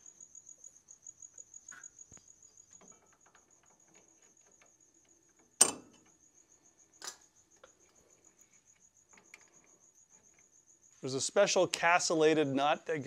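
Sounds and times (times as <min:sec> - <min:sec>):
cricket chirping: 0:00.0 - 0:13.0
sharp metal clank: 0:05.6 - 0:05.9.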